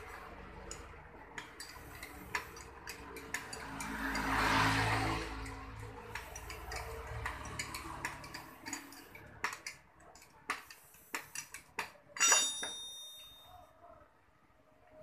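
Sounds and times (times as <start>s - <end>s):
metal tools ticking and knocking: 0.0s - 13.6s
ringing metallic clink: 12.2s - 13.6s.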